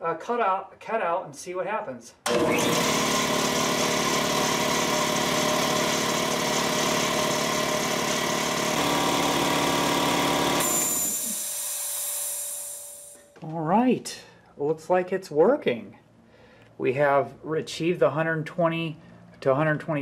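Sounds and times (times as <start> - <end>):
air compressor running: 2.3 - 13.3
short hiss of air: 11.2 - 13.2.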